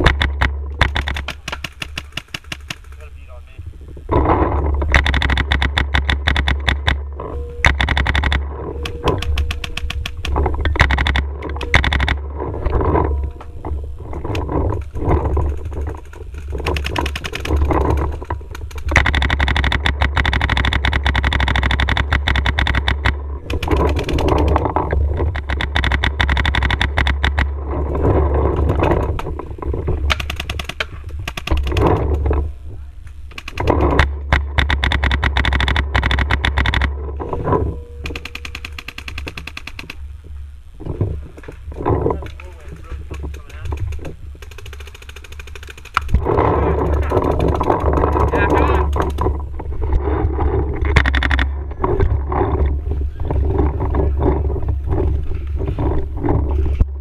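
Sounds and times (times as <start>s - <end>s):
paintball markers firing: 0.0s - 3.2s, 4.9s - 7.0s, 7.6s - 12.2s, 14.8s - 27.5s, 30.1s - 32.2s, 33.3s - 36.9s, 38.0s - 40.0s, 41.3s - 49.3s
steady low rumble: 0.0s - 57.0s.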